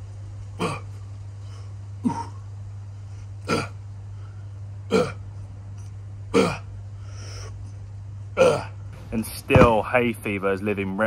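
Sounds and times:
low hum: 0:00.0 - 0:11.0
man grunting with effort: 0:00.6 - 0:01.0, 0:03.4 - 0:03.8, 0:04.9 - 0:05.2, 0:06.3 - 0:06.7, 0:08.4 - 0:08.9.

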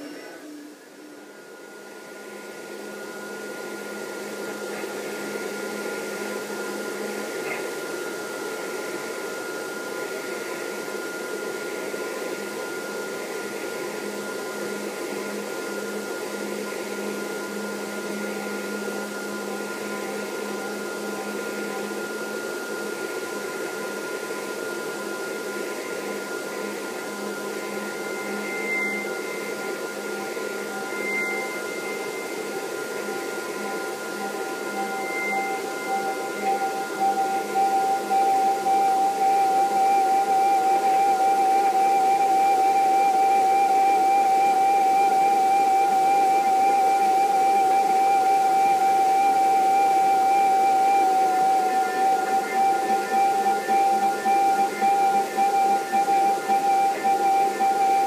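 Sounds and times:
held whistling tones: 0:26.0 - 0:58.0.

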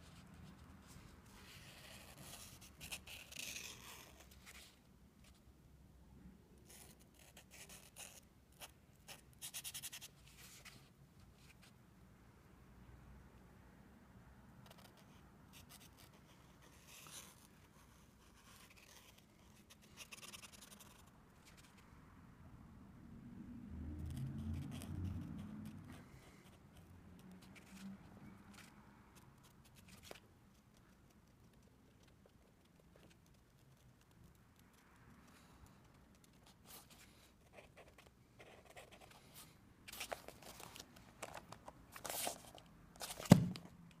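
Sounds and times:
marker scratching on paper: 0:01.3 - 0:04.6
paper rustling and rubbing: 0:39.9 - 0:43.6.

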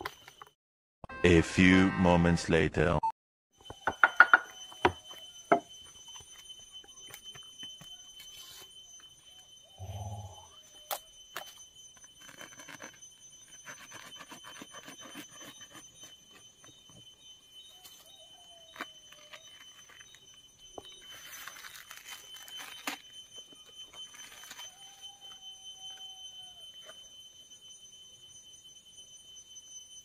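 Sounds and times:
steady high-pitched tone: 0:03.6 - 0:13.7
papery sheaths crackling and rustling: 0:18.7 - 0:25.0.

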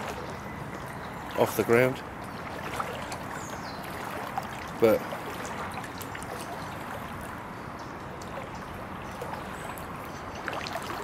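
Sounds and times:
running floodwater hiss: 0:01.3 - 0:07.6.

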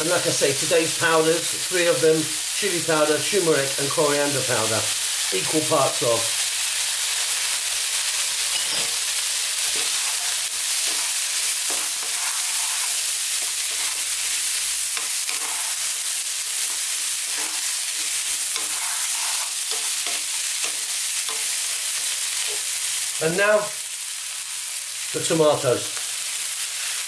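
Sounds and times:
vegetables sizzling in a frying pan: 0:00.0 - 0:27.0
wooden spatula scraping a pan: 0:08.5 - 0:21.6.

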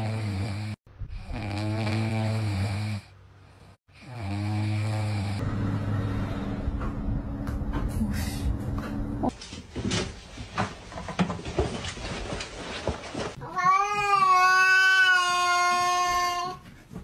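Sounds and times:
puppies snoring: 0:00.0 - 0:05.5.

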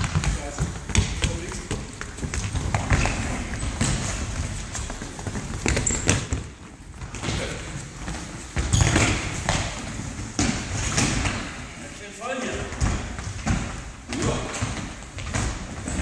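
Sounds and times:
running footsteps: 0:00.0 - 0:11.0.

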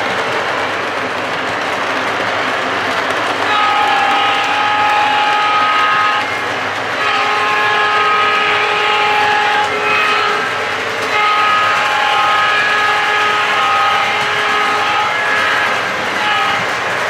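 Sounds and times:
model train wheels rumbling: 0:00.0 - 0:17.0
model train air horn blasts: 0:03.4 - 0:16.8.

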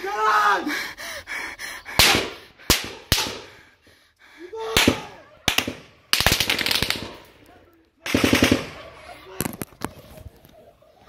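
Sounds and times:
single gunshots with echoes: 0:02.0 - 0:03.5
automatic gunfire burst: 0:08.1 - 0:08.8.

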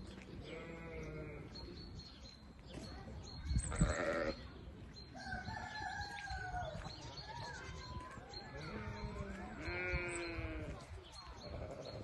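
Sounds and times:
wavering bleat: 0:03.7 - 0:04.4, 0:08.6 - 0:10.7.

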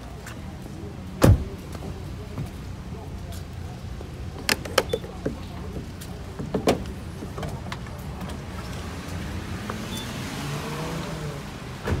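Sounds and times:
gas pump nozzle clicks: 0:04.4 - 0:05.3.

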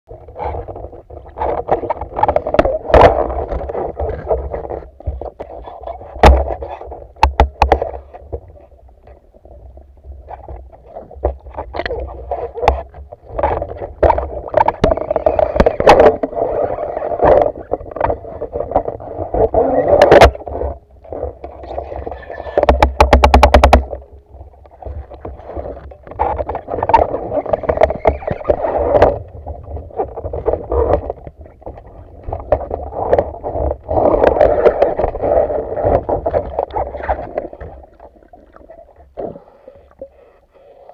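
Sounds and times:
muffled rushing water underwater: 0:00.1 - 0:40.9
knocks and clicks of speargun: 0:06.2 - 0:06.6, 0:07.2 - 0:07.9, 0:22.6 - 0:24.0.

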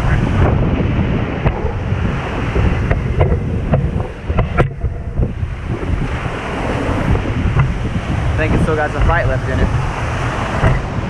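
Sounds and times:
breaking surf: 0:00.0 - 0:11.0
wind buffeting microphone: 0:00.0 - 0:11.0.

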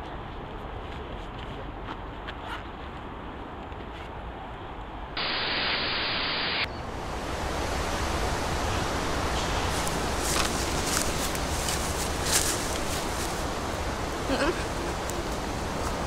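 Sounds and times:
steady outdoor hiss: 0:00.0 - 0:16.0
video static hiss: 0:05.2 - 0:16.0.

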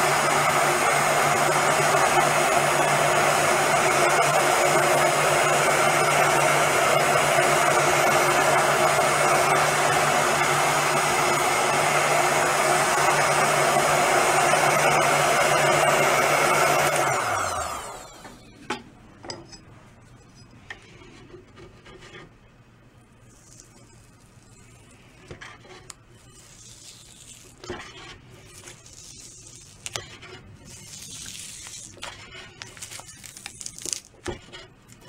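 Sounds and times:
putty knife scraping veneer: 0:19.5 - 0:22.4, 0:23.2 - 0:35.0.

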